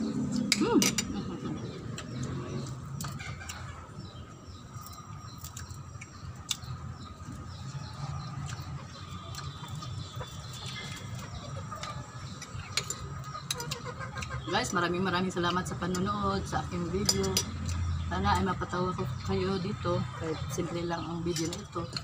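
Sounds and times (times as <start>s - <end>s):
chickens clucking: 6.6s - 16.2s, 16.9s - 22.0s.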